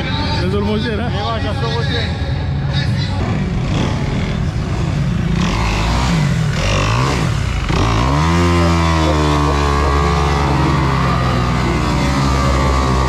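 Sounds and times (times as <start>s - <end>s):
dirt bike engine revving: 3.1s - 13.0s.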